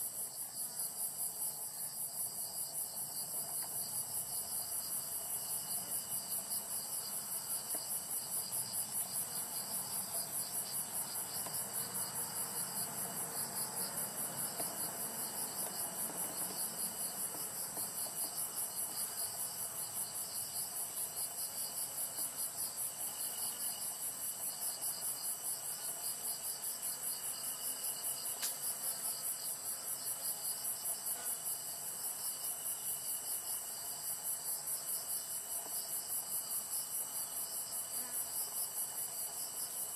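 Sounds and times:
insects pulsing chirr: 0.0 - 39.9
thin steady insect trill: 0.0 - 39.9.

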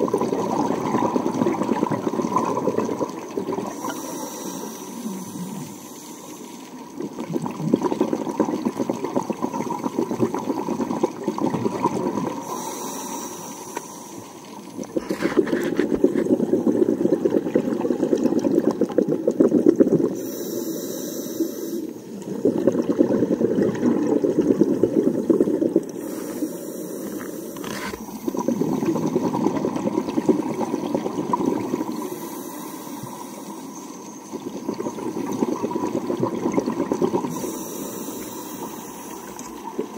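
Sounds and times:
bubbling regulator exhalations: 0.0 - 39.9
regulator inhalations: 3.6 - 6.6, 12.4 - 16.2, 20.2 - 22.1, 25.9 - 28.8, 31.7 - 34.4, 37.2 - 39.7.

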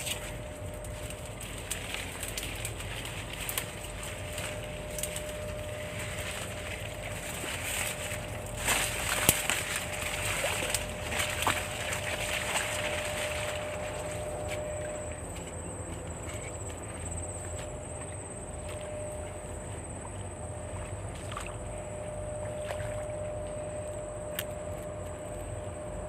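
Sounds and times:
leaves and grass rustling underfoot: 0.0 - 26.0
thin steady high tone: 3.6 - 20.9, 21.6 - 26.0.

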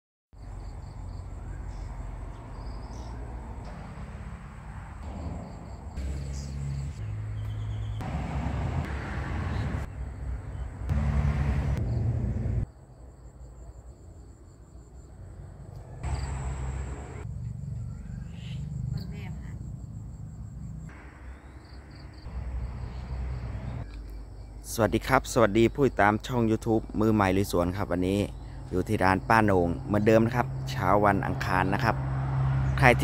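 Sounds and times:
insects chirring: 0.4 - 8.0, 11.8 - 26.5
low rumble: 8.0 - 12.6.

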